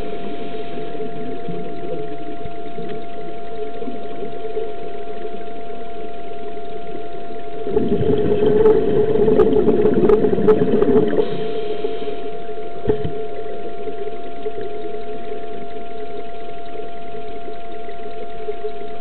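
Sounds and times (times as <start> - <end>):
steady hum with whine: 0.0 - 19.0
scuba diver exhaling bubbles: 7.6 - 14.0.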